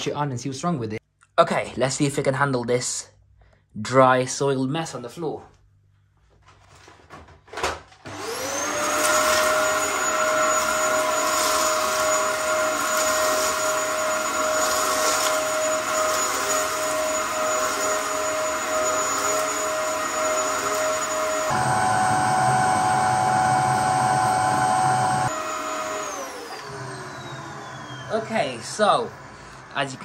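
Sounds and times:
vacuum cleaner motor whine: 8.0s - 30.0s.

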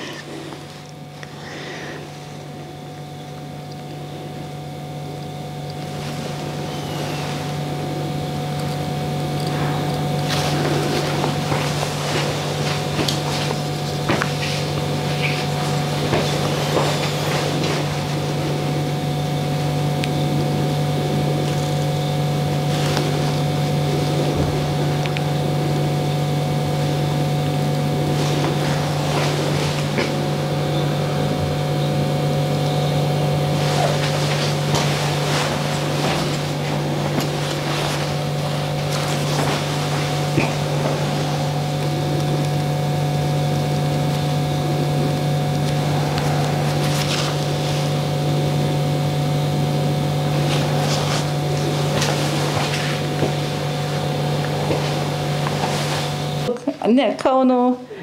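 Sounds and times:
low electrical hum: 0.0s - 58.0s.

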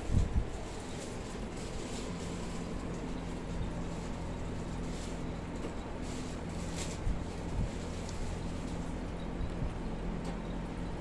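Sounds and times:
ceiling fan motor hum: 0.0s - 11.0s.

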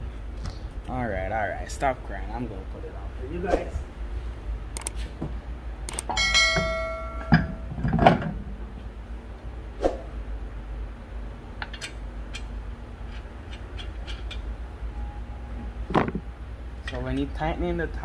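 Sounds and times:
sharp click: 4.8s - 5.0s, 5.9s - 6.2s
metal clank ringing: 6.1s - 8.5s
metal parts being handled: 13.1s - 14.5s.

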